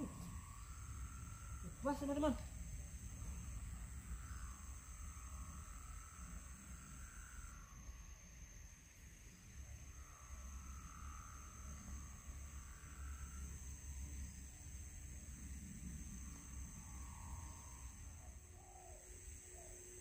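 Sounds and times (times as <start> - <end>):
high-pitched insect drone: 0.0 - 20.0.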